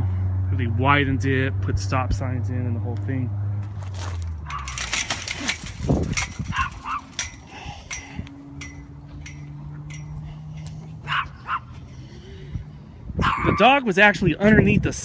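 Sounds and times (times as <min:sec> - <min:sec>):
dog barking: 0:04.5 - 0:04.8, 0:06.5 - 0:07.1, 0:11.0 - 0:11.7, 0:13.2 - 0:13.6.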